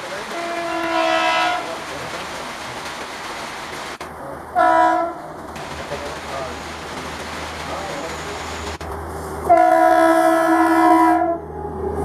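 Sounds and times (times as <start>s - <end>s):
train air horn blasts: 0.3s - 1.7s, 4.6s - 5.2s, 9.5s - 11.5s.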